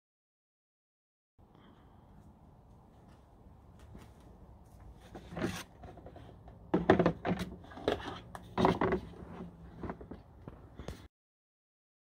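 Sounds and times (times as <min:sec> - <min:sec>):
plastic pots knocking and scraping: 0:03.8 - 0:11.1.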